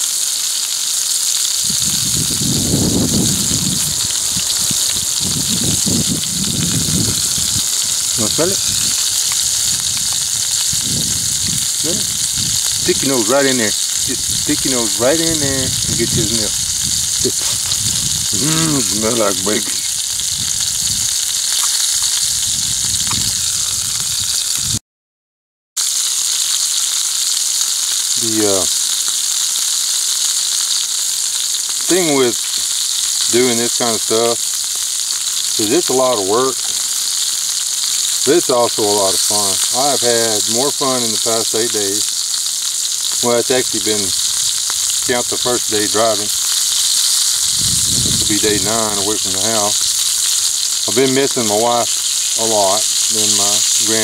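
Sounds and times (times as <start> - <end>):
bacon sizzling in a skillet: 0.0 - 24.8, 25.8 - 54.0
short rising voice: 18.4 - 18.9.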